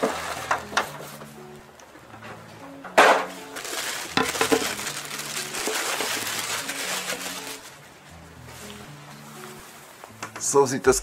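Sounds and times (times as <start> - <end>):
plastic wrap rustling: 0.0 - 1.2, 3.0 - 9.9
faint background music: 0.0 - 11.0.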